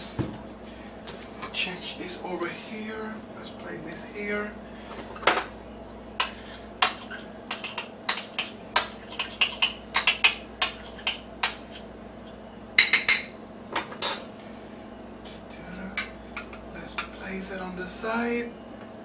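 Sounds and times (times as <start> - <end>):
utensil clinking against dishes: 12.8 - 14.3.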